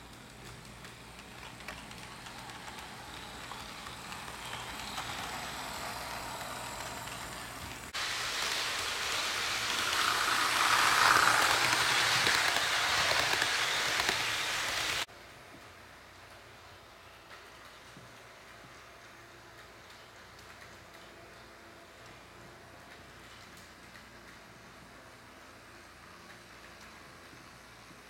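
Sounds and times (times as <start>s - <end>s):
model train wheels rattling on rail: 0.0s - 15.1s.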